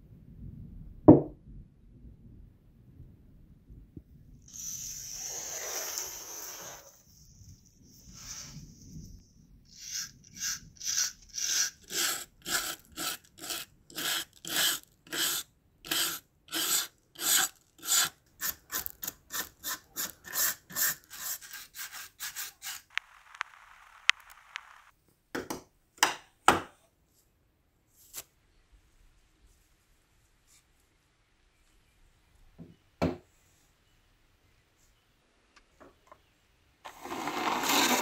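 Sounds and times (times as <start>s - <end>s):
wire brush scrubbing metal: 9.7s - 22.9s.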